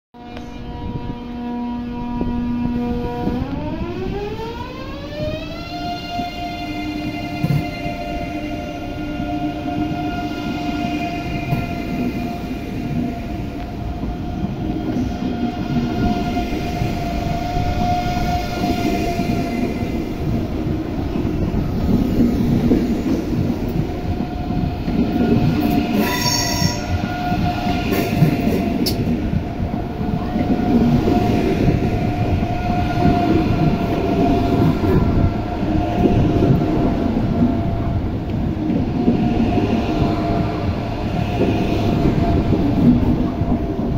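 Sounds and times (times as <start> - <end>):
train rumbling with electric whine: 0.2 - 43.9
high squeal: 25.9 - 27.7.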